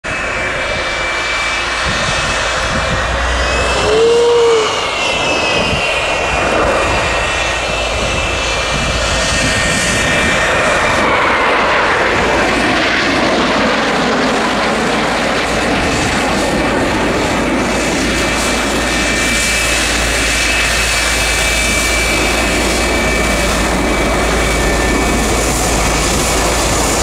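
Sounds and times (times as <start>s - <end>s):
jet engine rushing with whine: 0.0s - 27.0s
rising and falling tone: 1.9s - 8.1s.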